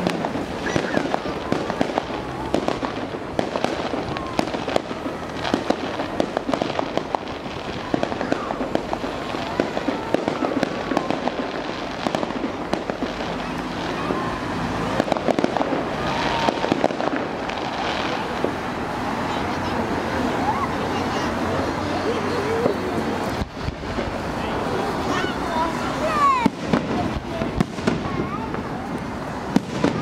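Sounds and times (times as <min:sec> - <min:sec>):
fireworks crackling and popping: 0:00.0 - 0:30.0.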